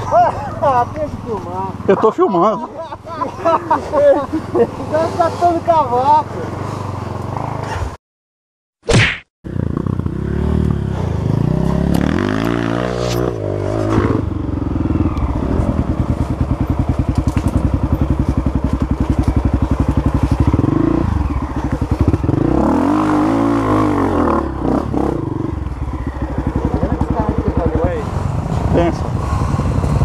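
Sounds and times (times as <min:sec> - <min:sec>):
dirt bike engine revving: 0:09.5 - 0:30.0.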